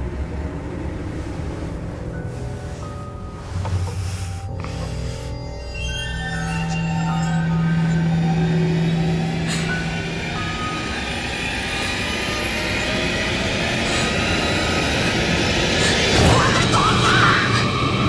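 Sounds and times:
sustained higher tone: 0:00.0 - 0:15.7
faint high whine: 0:00.0 - 0:15.8.

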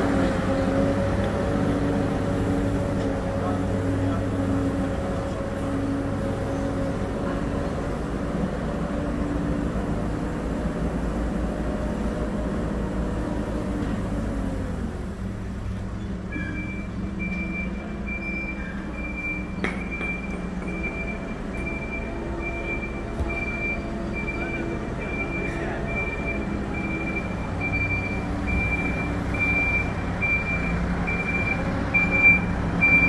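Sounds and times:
diesel engine running: 0:00.0 - 0:33.0
reversing alarm beeping: 0:16.3 - 0:33.0.

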